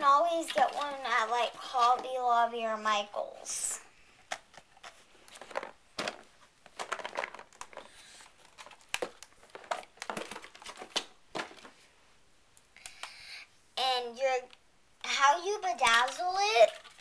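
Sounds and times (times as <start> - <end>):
packaging crinkling: 4.3 - 11.7.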